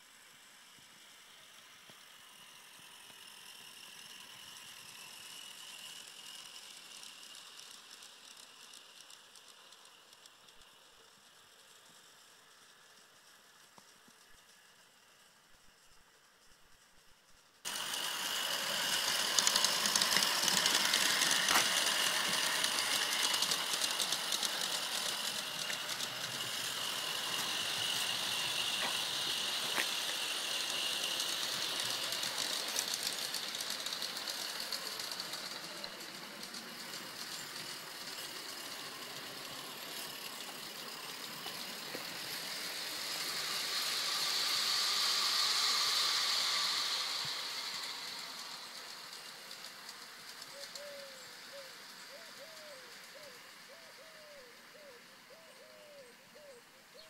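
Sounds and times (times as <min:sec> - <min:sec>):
model train rattle and hiss: 0:00.0 - 0:57.0
wheels ticking on rails: 0:00.3 - 0:15.2, 0:17.7 - 0:55.3.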